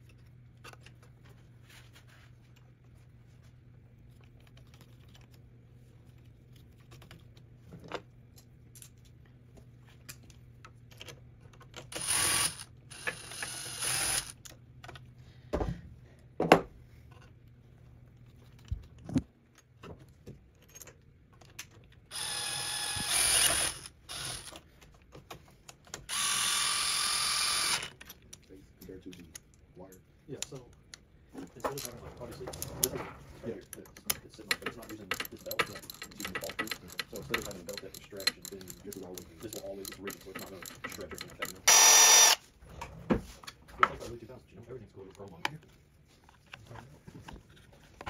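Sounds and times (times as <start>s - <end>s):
cordless drill driving bolts: 11.9s - 14.3s, 22.1s - 24.6s, 26.1s - 27.9s, 41.7s - 42.4s
clicks and knocks of tools: 18.5s - 22.0s, 33.6s - 41.8s.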